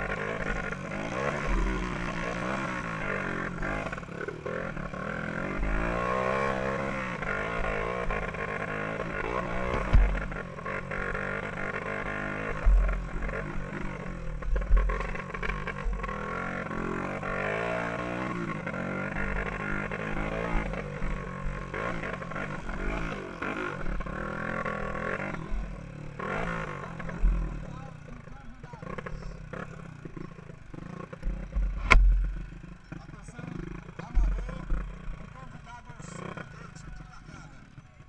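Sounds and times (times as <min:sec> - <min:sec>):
dirt bike engine revving: 0:00.0 - 0:37.8
heavy thumps: 0:09.7 - 0:10.5, 0:12.5 - 0:15.2, 0:31.2 - 0:32.4.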